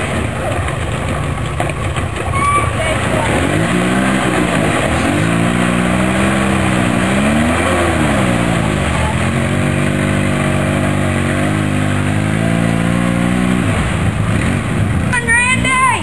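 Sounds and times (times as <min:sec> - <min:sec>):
tyres spinning in mud: 0:00.0 - 0:15.1
quad engine revving: 0:00.0 - 0:16.0.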